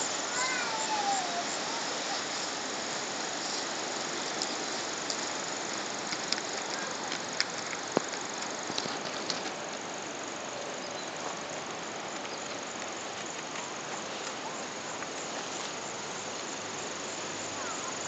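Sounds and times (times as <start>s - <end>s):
outdoor background hiss: 0.0s - 18.0s
hooves on gravel: 3.4s - 16.6s.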